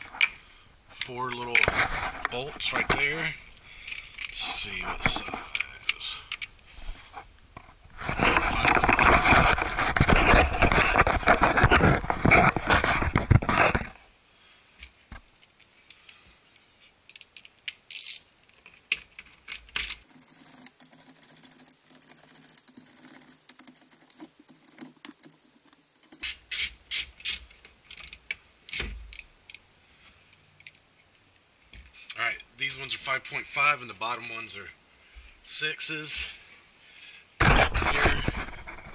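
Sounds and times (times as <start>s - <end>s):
socket ratchet clicking: 19.8s - 28.2s.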